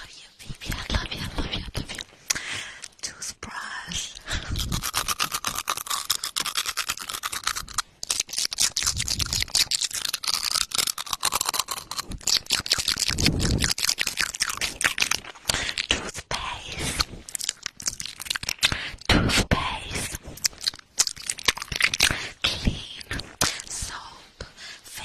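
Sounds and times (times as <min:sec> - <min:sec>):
fingernails scraping teeth: 0:04.6 - 0:15.6.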